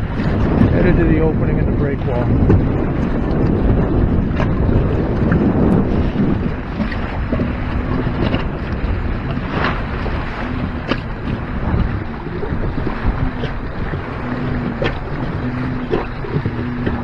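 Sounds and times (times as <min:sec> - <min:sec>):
water rushing past hull: 0:00.0 - 0:17.0
wind buffeting microphone: 0:00.0 - 0:17.0
sharp water slaps: 0:14.6 - 0:15.2.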